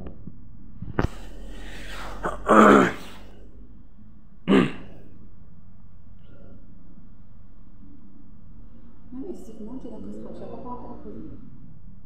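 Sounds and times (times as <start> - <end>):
person breathy vocal sounds: 1.1 - 3.4.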